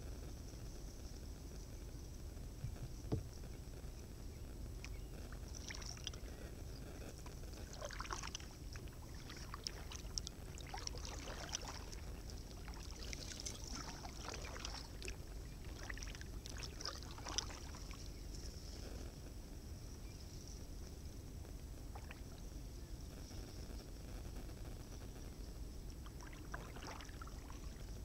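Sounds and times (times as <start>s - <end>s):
steady low rumble: 0.0s - 28.0s
paddle strokes splashing: 7.6s - 18.1s, 26.0s - 27.8s.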